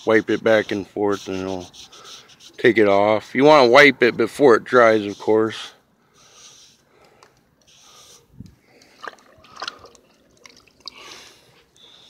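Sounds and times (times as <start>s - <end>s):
wet sponge rubbing: 0.0s - 3.3s.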